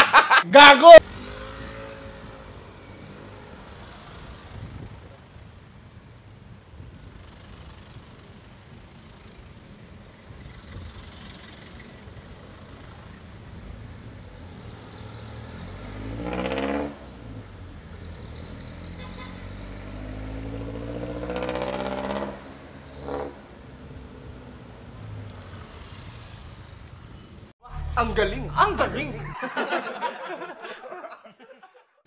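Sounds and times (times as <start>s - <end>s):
street traffic: 0.0s - 32.0s
motor scooter accelerating: 1.0s - 5.2s, 10.2s - 13.4s, 14.7s - 23.5s.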